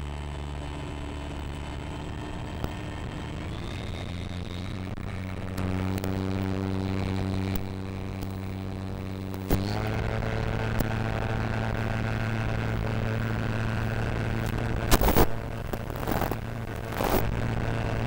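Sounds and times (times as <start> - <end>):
model plane propeller buzzing: 0.0 - 18.0
sharp clicks: 3.6 - 18.0.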